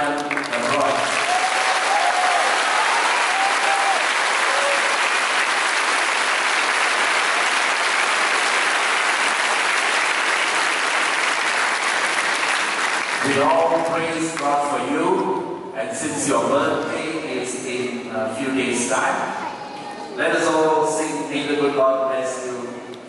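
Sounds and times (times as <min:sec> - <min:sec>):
congregation applauding: 0:00.0 - 0:14.8.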